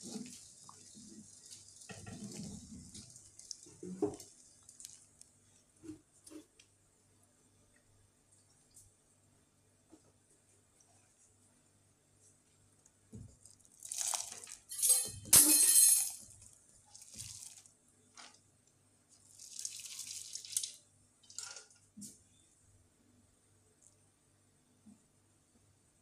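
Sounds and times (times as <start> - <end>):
sauce sloshing in metal pot: 13.4 - 14.7, 16.9 - 18.3.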